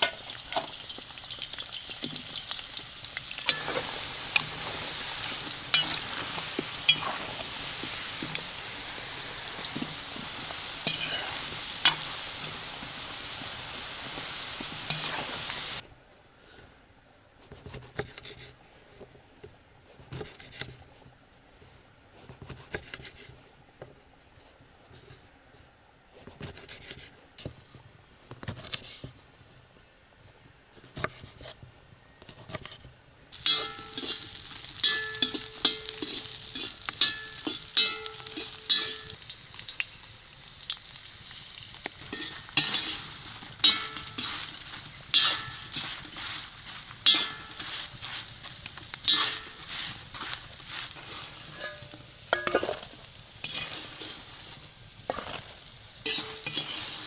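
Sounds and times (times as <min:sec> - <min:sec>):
food sizzling in a frying pan: 0:00.0 - 0:15.8, 0:33.3 - 0:57.0
utensil scraping against pan: 0:00.0 - 0:15.8, 0:33.4 - 0:40.0, 0:41.0 - 0:57.0.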